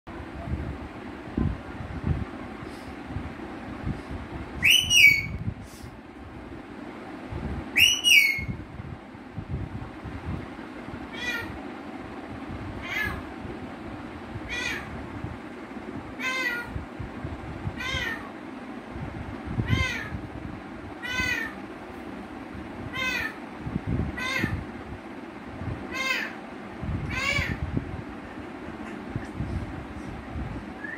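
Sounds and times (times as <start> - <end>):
parakeet imitating cat meow: 11.1 - 11.6, 12.8 - 13.2, 14.5 - 14.9, 16.2 - 16.8, 17.8 - 18.3, 19.6 - 20.2, 21.0 - 21.6, 22.9 - 23.4, 24.2 - 24.6, 25.9 - 26.4, 27.1 - 27.6.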